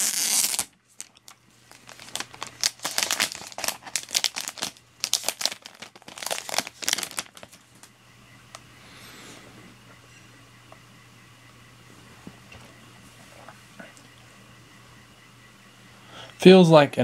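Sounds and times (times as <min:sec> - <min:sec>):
plastic film peeling and crinkling: 0:00.0 - 0:07.9.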